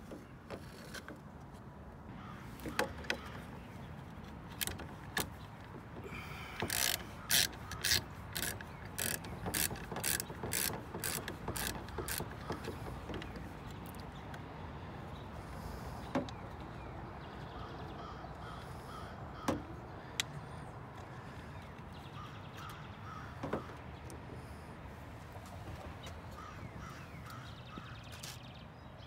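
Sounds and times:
ratchet wrench clicking: 6.5 - 12.7.

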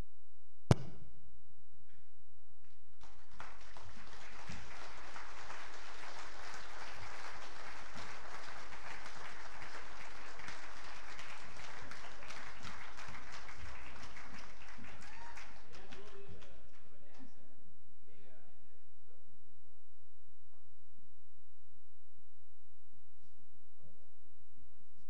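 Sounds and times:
congregation applauding: 3.0 - 16.9.

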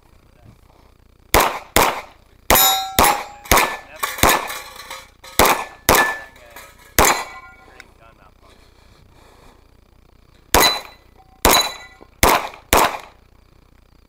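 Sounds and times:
pistol shots: 1.3 - 4.6, 5.4 - 6.4, 7.0 - 7.6, 10.5 - 13.2
steel targets ringing: 2.5 - 7.8, 10.6 - 12.1.

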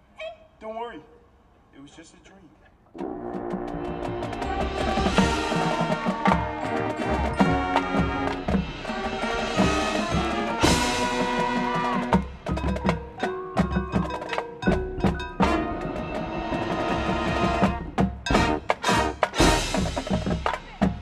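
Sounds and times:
marching band playing: 2.9 - 21.0.

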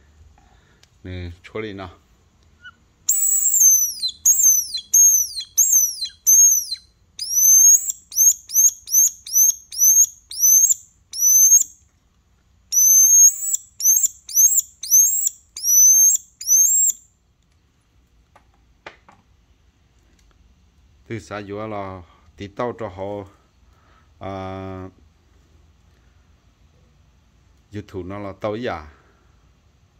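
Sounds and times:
shrill whistle chirps: 2.6 - 11.8, 12.7 - 17.1.

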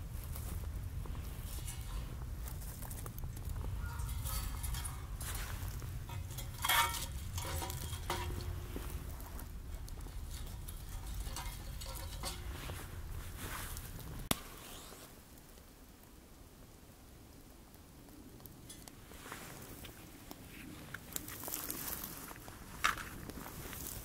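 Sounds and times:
low steady rumble: 0.0 - 14.3
utensils and dishes clinking: 3.8 - 9.1, 9.9 - 13.0.

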